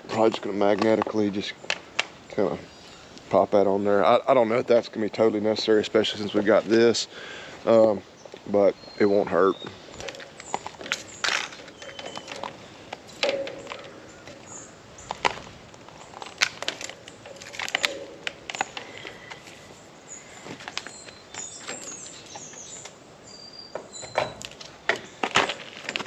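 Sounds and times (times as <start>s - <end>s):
clicks and knocks of handling: 10.0s - 19.6s, 23.8s - 26.0s.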